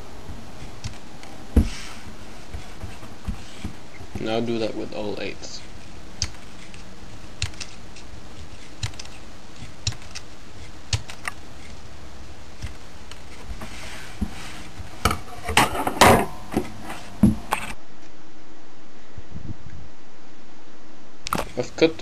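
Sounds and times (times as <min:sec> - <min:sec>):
plastic rustling: 0:00.0 - 0:11.8
scissors snipping plastic: 0:07.4 - 0:10.3.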